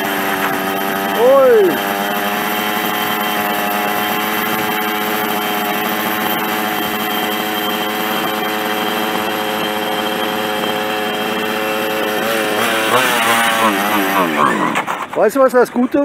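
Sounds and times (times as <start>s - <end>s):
rising and falling whine: 0.0s - 15.5s
small two-stroke engine idling: 0.0s - 16.0s.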